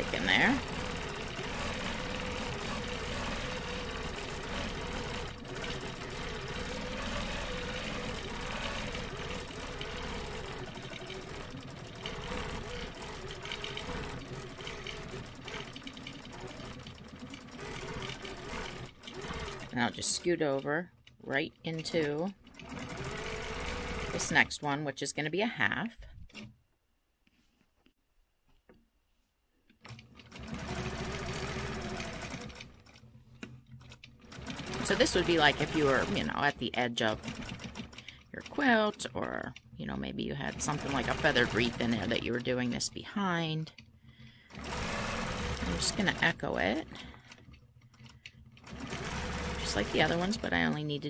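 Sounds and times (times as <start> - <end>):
quilting machine stitching: 0.0 - 24.7, 29.8 - 51.0.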